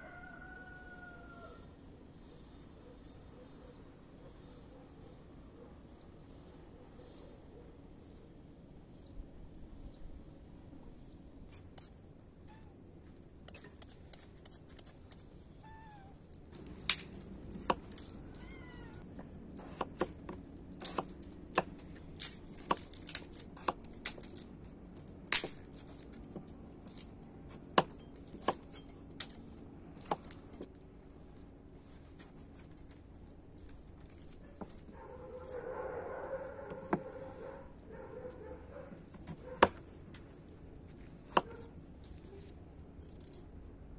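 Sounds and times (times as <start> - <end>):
cat meowing: 15.6 - 16.2, 18.2 - 19.0
knife chopping on wooden board: 16.6 - 18.1, 19.6 - 21.9, 22.6 - 23.0, 23.6 - 23.9, 27.5 - 28.8, 30.0 - 30.7, 39.0 - 39.8, 41.3 - 41.7.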